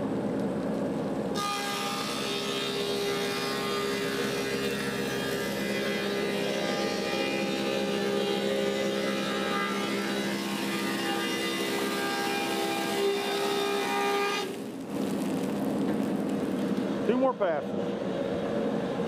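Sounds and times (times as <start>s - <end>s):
wood cutting hiss: 10.7s - 17.0s.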